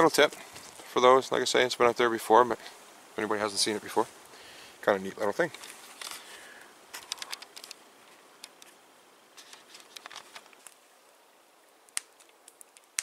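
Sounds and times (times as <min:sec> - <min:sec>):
camera handling clicks and rustles: 0:05.5 - 0:06.3, 0:06.9 - 0:07.8, 0:08.4 - 0:08.8, 0:09.4 - 0:10.8.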